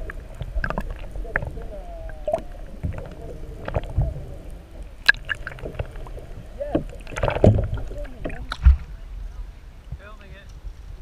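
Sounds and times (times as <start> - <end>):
clicks and knocks underwater: 0.0 - 8.9
underwater gurgling and sloshing: 0.0 - 11.0.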